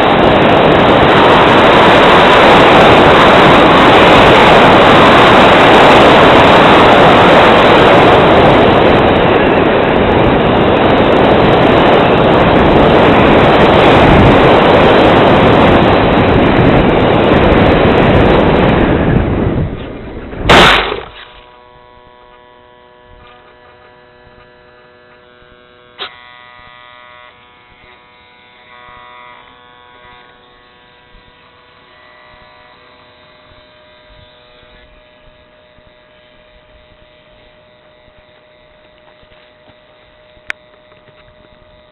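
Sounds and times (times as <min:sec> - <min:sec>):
faint steady hum: 0:00.0 - 0:41.9.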